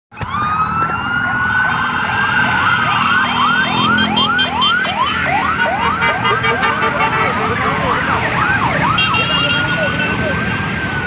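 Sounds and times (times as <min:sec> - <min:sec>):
electronic siren wailing: 0:00.2 - 0:11.0.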